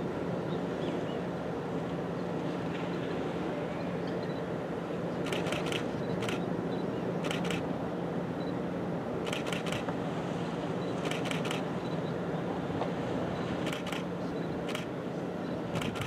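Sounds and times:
wind and water noise: 0:00.0 - 0:16.0
quick sharp clicks: 0:11.0 - 0:11.6, 0:15.8 - 0:16.0.

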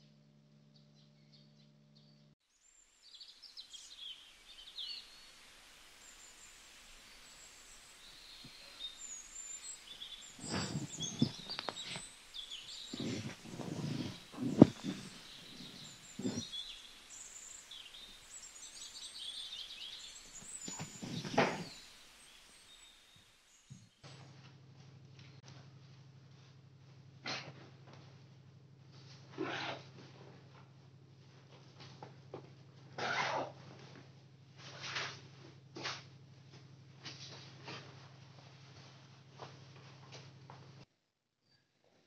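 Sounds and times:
small birds chirping: 0:00.7 - 0:05.4, 0:06.0 - 0:24.3
soft outdoor hiss: 0:02.0 - 0:40.8
rustles and knocks: 0:10.4 - 0:12.1, 0:12.9 - 0:16.6, 0:20.3 - 0:21.8.

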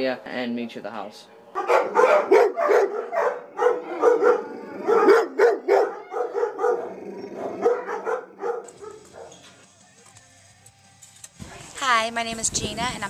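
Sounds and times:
dog barking: 0:01.6 - 0:09.4.

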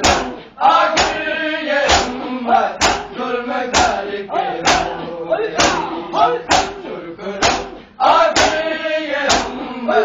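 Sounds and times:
men chanting in unison: 0:00.0 - 0:10.0
hands slapping chests: 0:01.8 - 0:02.2, 0:07.4 - 0:07.7.

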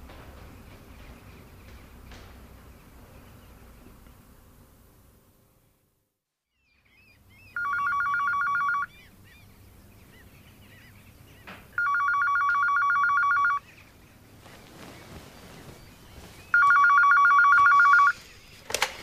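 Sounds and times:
telephone ringing with warble: 0:07.6 - 0:08.9, 0:11.8 - 0:13.6, 0:16.6 - 0:18.2.

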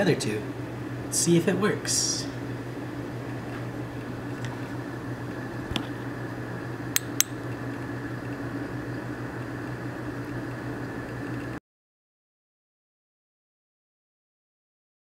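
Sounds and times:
aquarium equipment humming: 0:00.0 - 0:11.6.

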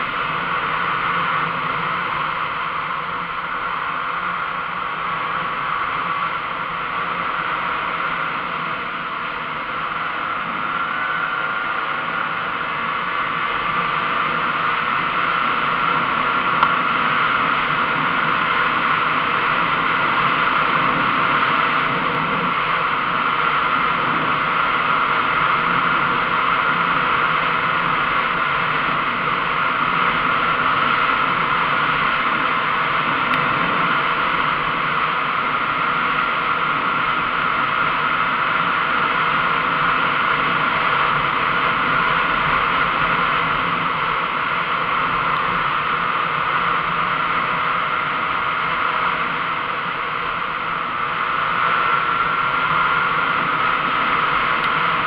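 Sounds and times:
two-stroke motorcycle engine running: 0:00.0 - 0:55.0
wind rush on microphone: 0:00.0 - 0:55.0.

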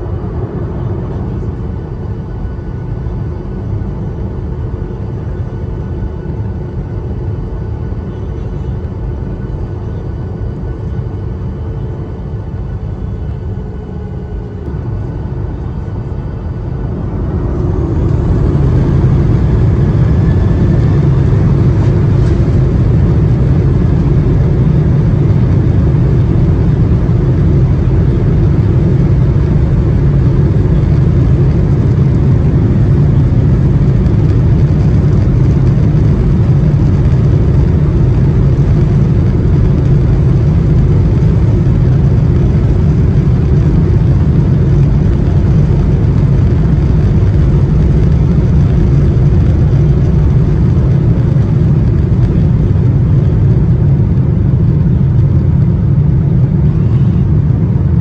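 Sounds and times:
jet engines spooling up: 0:13.2 - 0:58.0.

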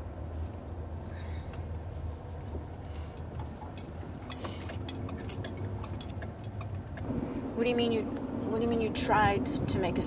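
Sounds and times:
car road and engine rumble: 0:00.0 - 0:10.0
light clicks and clinks: 0:03.6 - 0:07.1.

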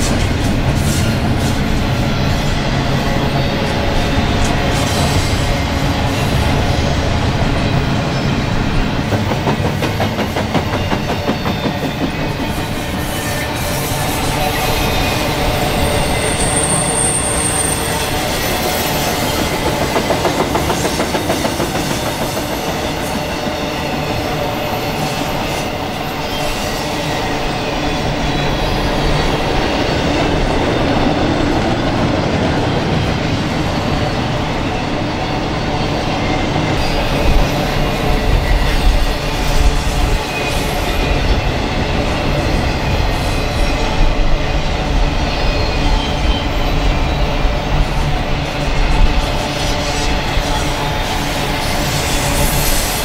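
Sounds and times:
train wheels rumbling on rails: 0:00.0 - 0:53.0
high wheel squeal: 0:10.8 - 0:19.8, 0:49.1 - 0:53.0.

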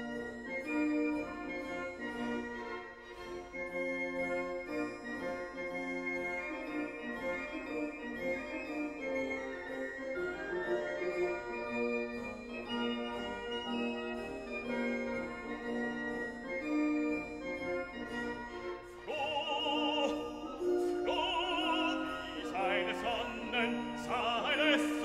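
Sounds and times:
opera singing with vibrato: 0:19.0 - 0:25.0.

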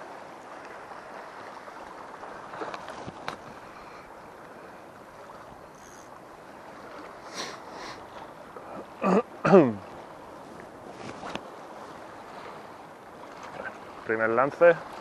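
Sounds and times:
sea waves washing: 0:00.0 - 0:15.0
wind: 0:00.0 - 0:15.0
soft rustles: 0:10.4 - 0:12.0.

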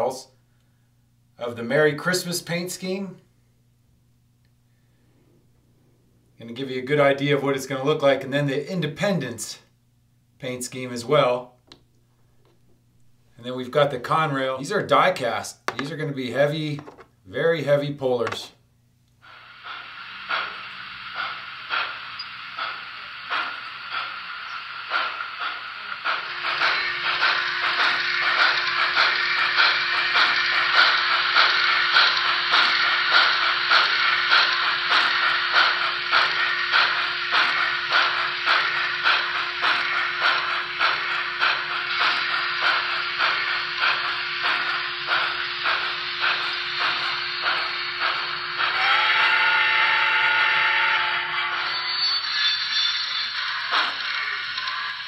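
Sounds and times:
steam chuffs through small speaker: 0:19.2 - 0:55.0
locomotive whistle chord: 0:19.4 - 0:55.0.

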